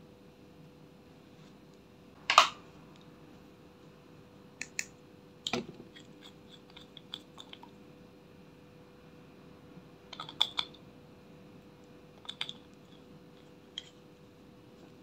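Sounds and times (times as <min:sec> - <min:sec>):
bottle cap clicks and ticks: 0:10.1 - 0:10.8.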